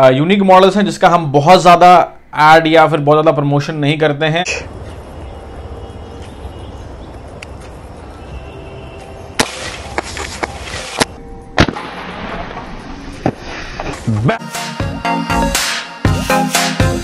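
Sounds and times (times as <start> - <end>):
music: 8.2 - 12.6, 13.9 - 17.0
air pistol shots: 11.6 - 12.3.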